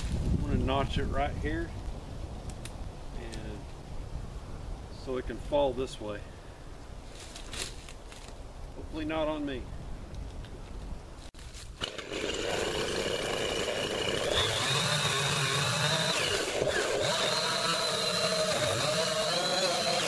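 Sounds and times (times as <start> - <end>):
chainsaw cutting wood: 11.8 - 20.0.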